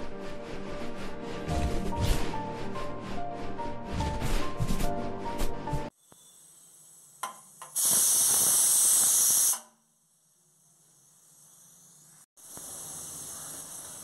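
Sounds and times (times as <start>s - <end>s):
pressure cooker steam hiss: 5.9s - 14.0s.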